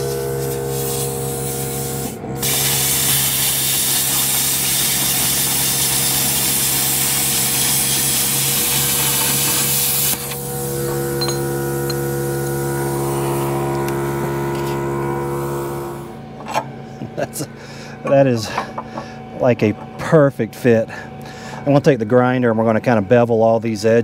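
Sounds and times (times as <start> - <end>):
plasma cutter hissing: 0.0 - 14.5
air compressor humming: 0.0 - 23.3.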